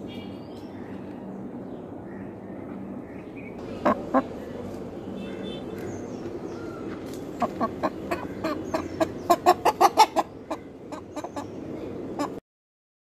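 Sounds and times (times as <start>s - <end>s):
hen clucking: 3.6s - 4.4s, 7.4s - 12.4s.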